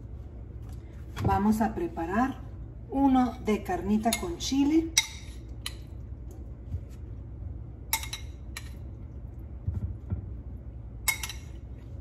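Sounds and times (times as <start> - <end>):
metal spoon clinking on ceramic bowl: 7.9 - 8.8, 11.0 - 11.6.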